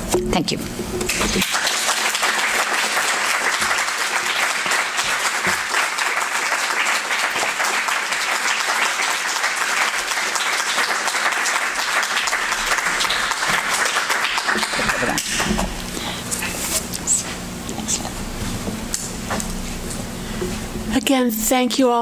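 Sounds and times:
audience applauding: 1.1 - 16.0.

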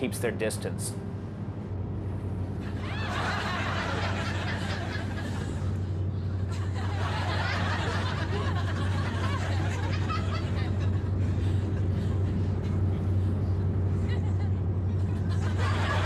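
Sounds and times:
boat engine drone: 0.0 - 16.0
audience laughter: 2.6 - 13.3, 13.9 - 16.0.

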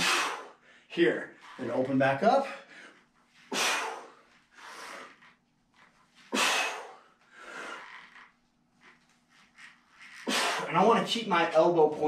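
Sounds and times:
man breathing forcefully: 0.0 - 0.9, 2.6 - 5.2, 6.3 - 7.9.

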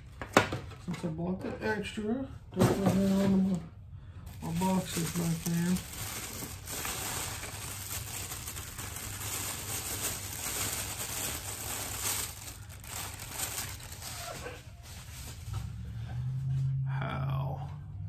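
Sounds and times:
packaging crinkling and rustling: 4.3 - 15.6.

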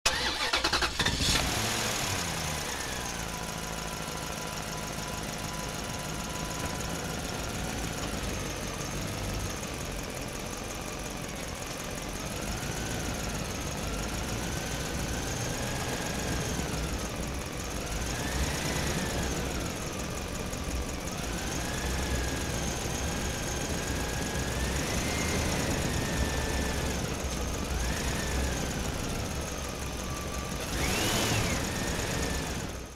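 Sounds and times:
engine low rumble: 0.1 - 32.9.

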